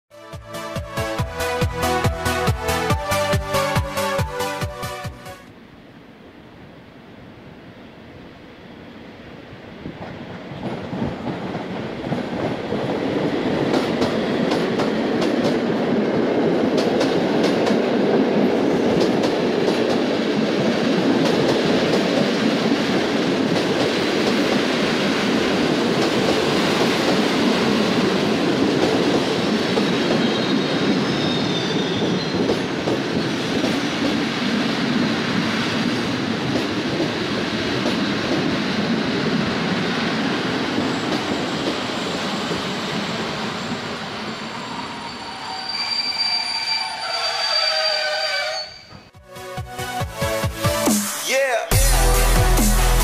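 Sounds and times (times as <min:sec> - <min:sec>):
train rumbling past: 0:00.2 - 0:50.9
faint high squeals: 0:30.2 - 0:32.6, 0:40.9 - 0:49.1.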